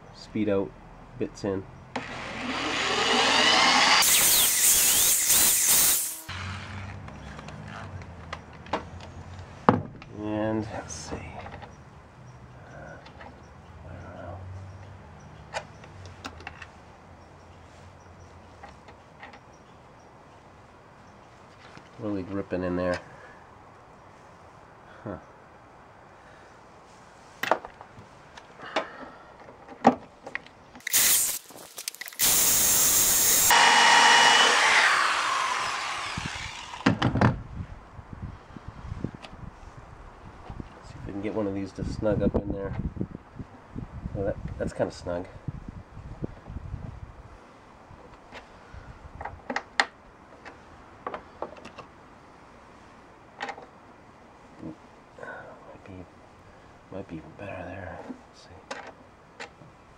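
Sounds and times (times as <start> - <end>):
power drill running: 2.0 - 6.7, 30.8 - 37.0.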